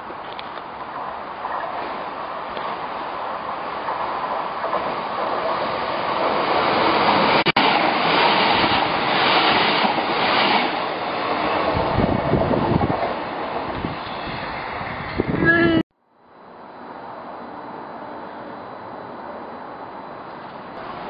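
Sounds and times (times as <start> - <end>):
passenger train rushing past: 0.0 - 15.8, 16.4 - 21.0.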